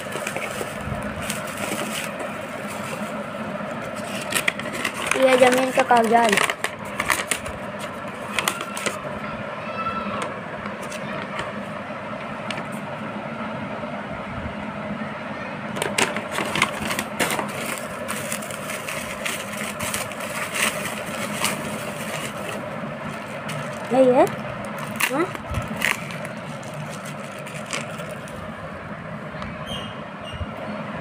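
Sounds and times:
paper rustling: 0:00.0 - 0:03.2, 0:03.8 - 0:09.0, 0:15.9 - 0:28.4
bubble wrap crackling: 0:00.0 - 0:09.0, 0:16.3 - 0:28.4.

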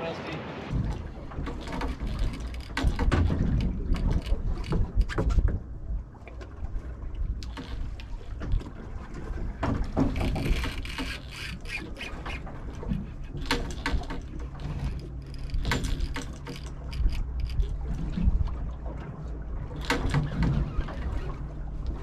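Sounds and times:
boat hum: 0:00.0 - 0:22.0
fishing reel clicking and squeaking: 0:10.2 - 0:12.5.

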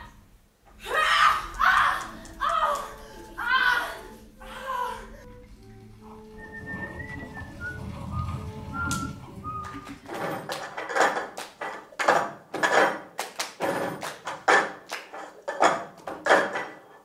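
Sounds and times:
people clapping: 0:01.0 - 0:03.4, 0:08.4 - 0:15.4.

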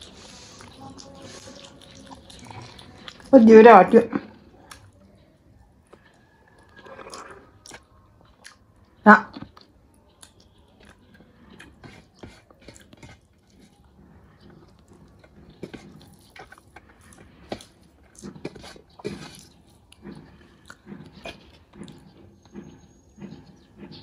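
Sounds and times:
chewing and lip-smacking: 0:00.0 - 0:03.4, 0:04.3 - 0:24.0
fingers working rice on metal plate: 0:10.8 - 0:24.0.

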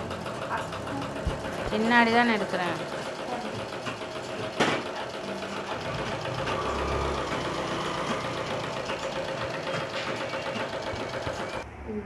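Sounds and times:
treadle sewing machine clatter: 0:00.0 - 0:11.6.

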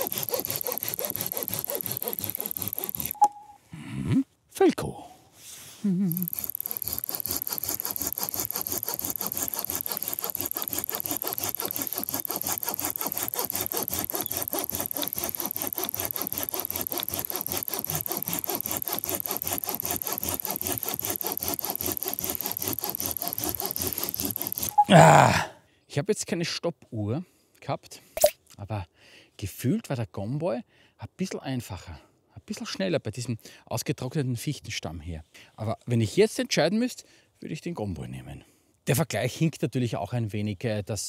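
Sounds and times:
hand saw cutting wood: 0:00.0 - 0:03.3, 0:06.1 - 0:24.9.

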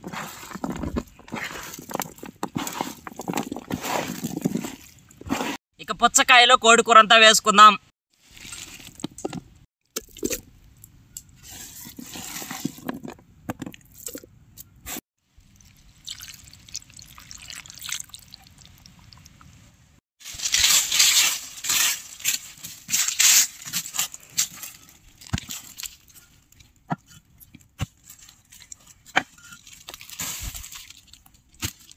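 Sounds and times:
hands scraping stony soil: 0:00.0 - 0:05.6, 0:11.4 - 0:13.0, 0:20.3 - 0:26.3
wet squelching and dripping: 0:15.4 - 0:19.6.

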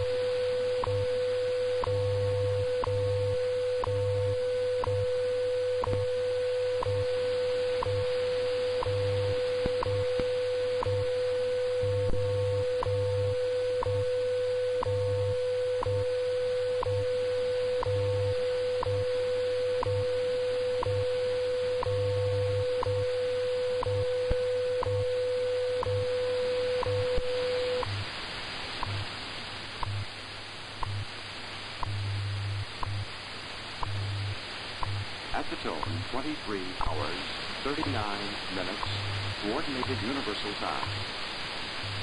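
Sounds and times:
time signal ticks: 0:00.8 - 0:01.1, 0:04.8 - 0:05.2, 0:05.8 - 0:14.1, 0:14.8 - 0:16.1, 0:17.8 - 0:19.2, 0:19.8 - 0:20.1, 0:20.8 - 0:21.2, 0:21.8 - 0:28.0, 0:28.8 - 0:29.0, 0:29.8 - 0:30.1, 0:30.8 - 0:31.1, 0:31.8 - 0:32.1, 0:32.8 - 0:33.1, 0:33.8 - 0:34.2, 0:34.8 - 0:41.0
low pulsing hum: 0:28.8 - 0:42.0
radio static: 0:33.9 - 0:42.0
steady radio tone: 0:35.3 - 0:41.1.

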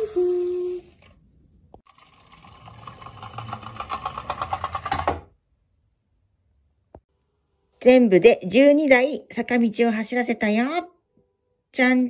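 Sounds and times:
toy wheels clattering on wood: 0:01.8 - 0:05.3.

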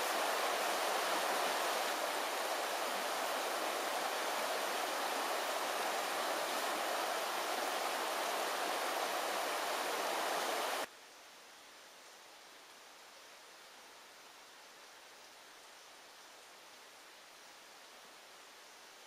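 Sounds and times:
river water rushing: 0:00.0 - 0:10.9
faint hiss: 0:00.0 - 0:19.0.

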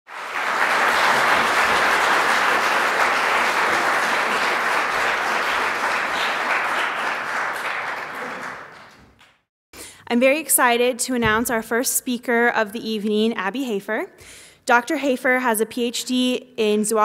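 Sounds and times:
audience applauding: 0:00.1 - 0:09.4.

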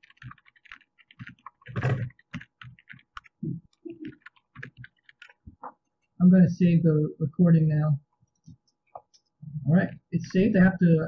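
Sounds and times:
computer keyboard typing: 0:00.0 - 0:05.8.

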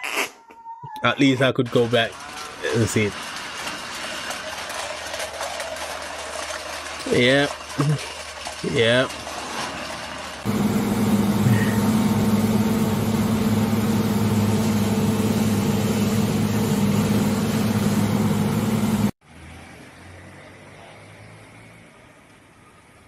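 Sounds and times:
combine harvester engine drone: 0:10.5 - 0:19.2.

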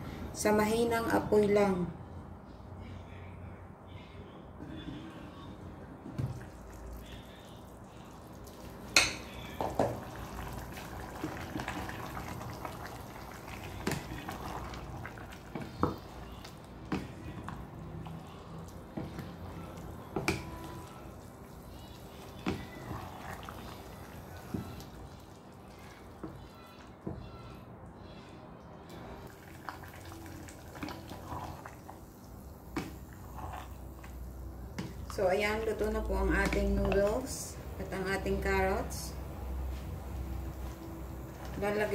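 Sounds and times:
soup simmering in covered pot: 0:06.3 - 0:27.0, 0:29.2 - 0:41.9.

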